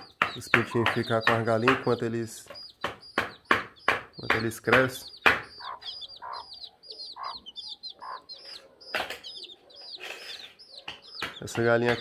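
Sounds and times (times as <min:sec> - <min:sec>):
chicks peeping: 0:00.0 - 0:12.0
hen clucking: 0:00.0 - 0:12.0.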